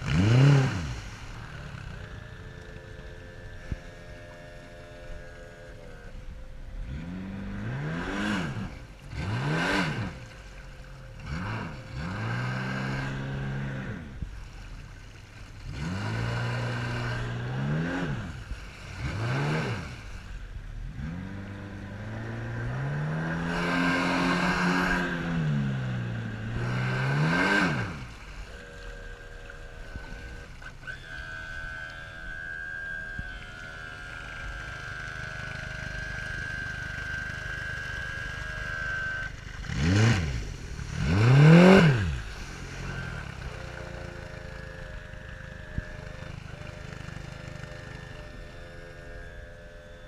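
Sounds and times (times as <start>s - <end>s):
outboard motor surging: 0.0s - 50.0s.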